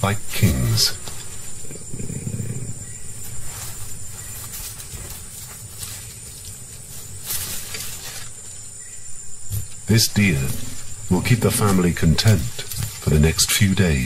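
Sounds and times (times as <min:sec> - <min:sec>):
low animal rumbling: 0:00.2 - 0:05.4, 0:09.5 - 0:13.4
rustling and tearing: 0:03.2 - 0:08.6.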